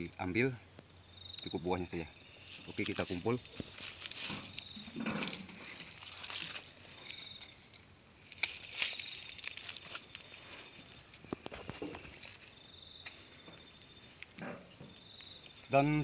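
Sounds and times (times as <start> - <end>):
insects buzzing: 0.0 - 16.0
footsteps: 2.4 - 7.5, 8.4 - 15.0.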